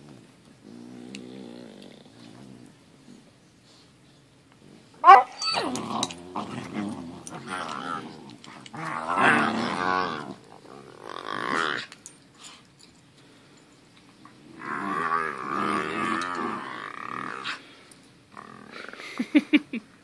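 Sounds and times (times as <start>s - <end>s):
dogs growling: 0.0s - 3.3s, 4.6s - 12.0s, 14.3s - 19.1s
dog yapping: 5.0s - 6.0s.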